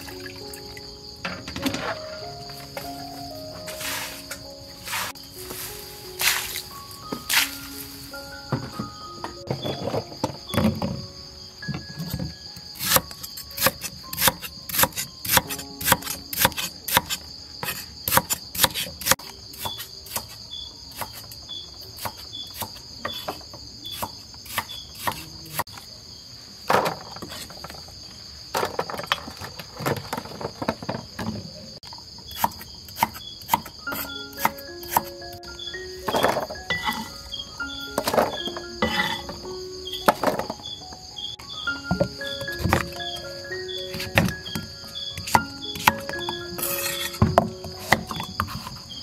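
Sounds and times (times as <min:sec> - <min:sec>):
insect chorus: 0:00.0 - 0:49.0
knife chopping on wooden block: 0:12.8 - 0:21.2, 0:22.0 - 0:25.6, 0:32.3 - 0:35.1, 0:45.2 - 0:48.8.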